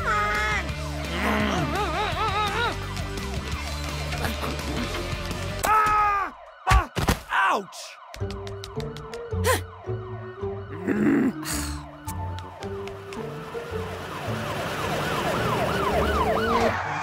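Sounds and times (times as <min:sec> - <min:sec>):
background music: 0:00.0 - 0:17.0
police siren warbling: 0:05.8 - 0:17.0.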